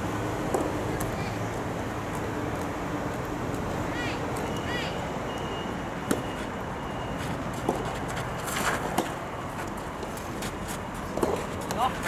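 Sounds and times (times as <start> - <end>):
outdoor background hiss: 0.0 - 12.0
tennis racket hitting ball: 11.0 - 12.0.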